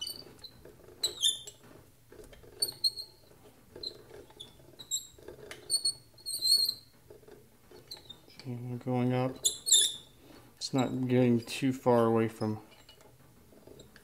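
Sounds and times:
high-pitched machine squeaks: 1.0s - 1.6s, 3.8s - 6.9s, 9.4s - 10.1s.

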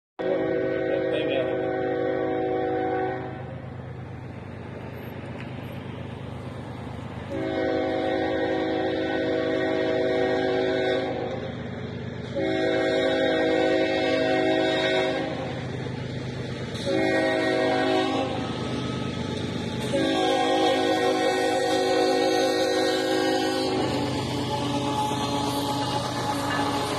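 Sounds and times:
locomotive horn blasts: 0.2s - 3.6s, 7.3s - 11.4s, 12.3s - 15.6s, 16.8s - 18.4s, 19.8s - 26.9s
train rumbling: 0.2s - 26.9s.

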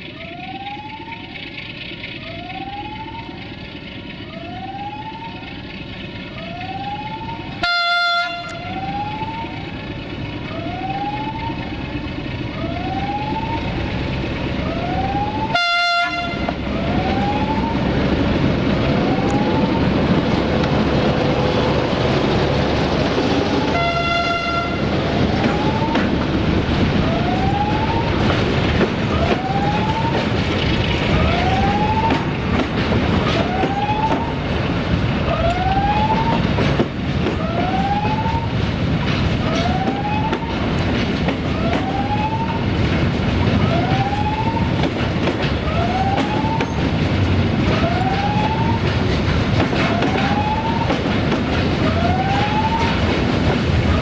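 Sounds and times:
locomotive engine and wheel noise: 0.0s - 54.0s
rising electronic warning tone: 0.1s - 3.6s, 16.4s - 32.6s
locomotive horn blasts: 7.6s - 8.8s, 15.5s - 16.7s, 23.7s - 24.9s.

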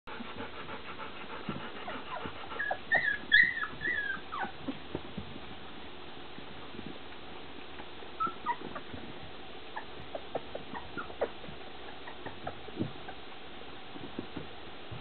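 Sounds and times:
puppies whimpering: 1.8s - 4.8s, 8.2s - 9.0s, 9.7s - 13.2s.

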